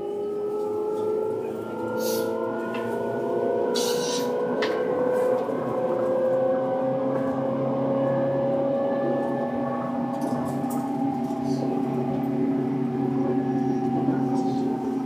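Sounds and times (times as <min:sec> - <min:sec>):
electric train motor whine: 0:00.0 - 0:15.0.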